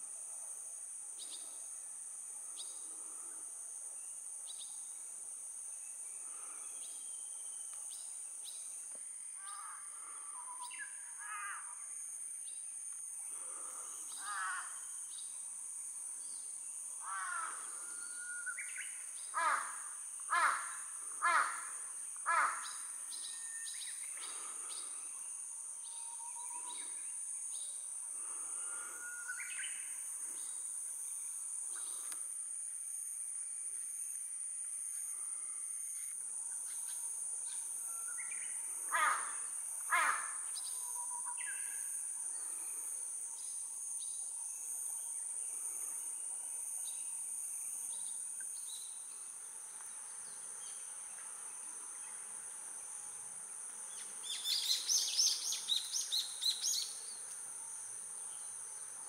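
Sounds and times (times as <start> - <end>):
crow cawing: 9.4 - 10.2, 11.2 - 11.8, 14.2 - 14.8, 17.0 - 17.8, 19.3 - 22.9, 38.9 - 40.4
high-pitched insect drone: 9.4 - 59.0.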